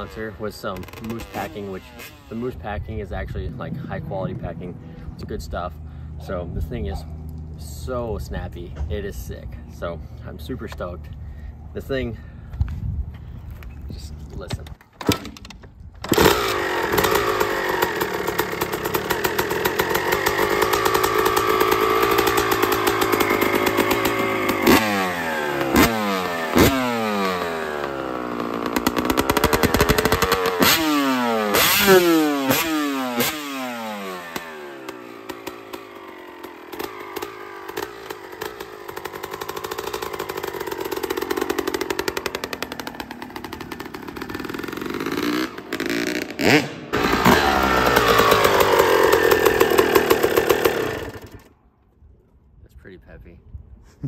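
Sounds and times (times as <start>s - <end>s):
dirt bike engine revving: 0.0s - 7.5s, 16.0s - 51.5s.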